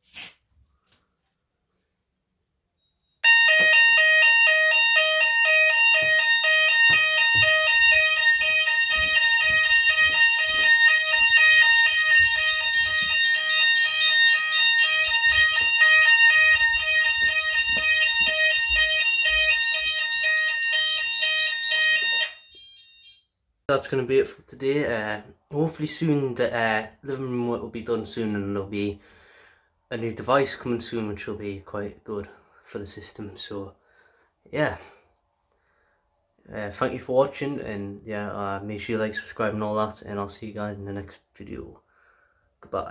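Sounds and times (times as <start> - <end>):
pulsing fire alarm: 2.8 - 23.5.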